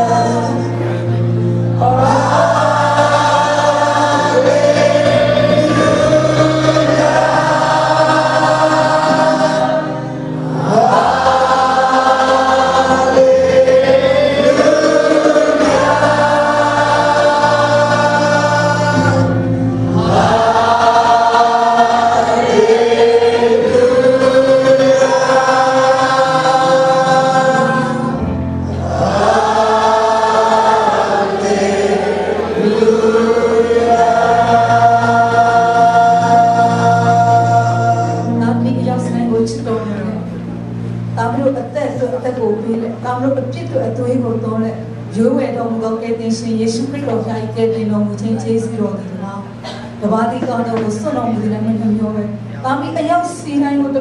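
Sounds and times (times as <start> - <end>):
group singing worship song: 0.0 - 39.0
instrumental backing: 0.0 - 54.0.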